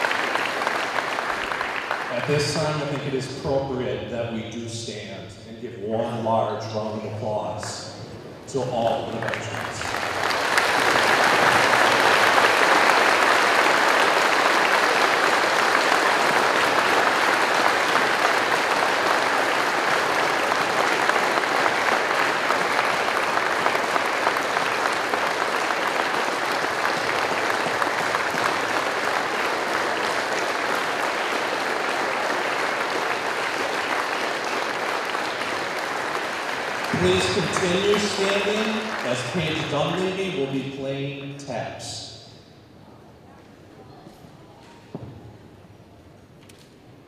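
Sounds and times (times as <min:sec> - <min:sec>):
audience applauding: 0:00.0 - 0:03.4, 0:08.5 - 0:41.2.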